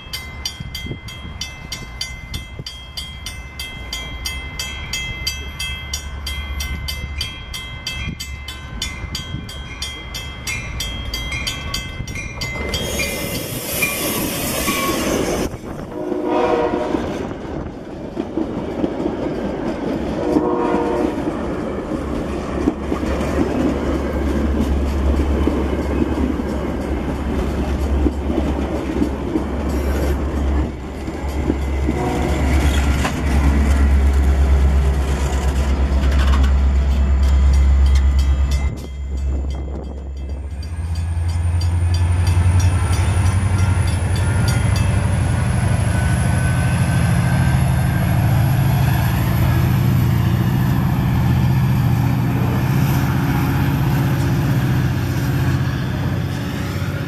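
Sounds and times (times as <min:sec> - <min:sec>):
diesel locomotive engine throbbing: 0:00.0 - 0:57.0
train wheels rumbling on rail: 0:00.0 - 0:57.0.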